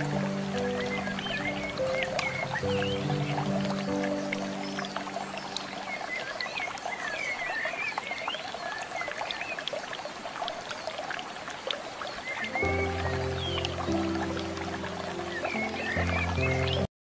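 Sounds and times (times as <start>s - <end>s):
background music: 0.0s - 6.1s, 12.4s - 16.9s
steady watery hiss: 0.0s - 16.9s.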